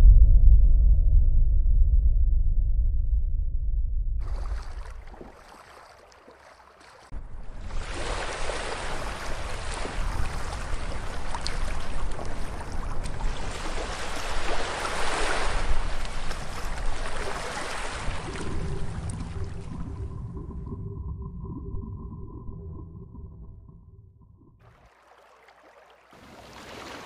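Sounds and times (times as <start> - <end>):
low rumble: 0.0 - 5.1, 18.0 - 24.6
rushing churning water: 4.2 - 20.2, 24.6 - 27.0.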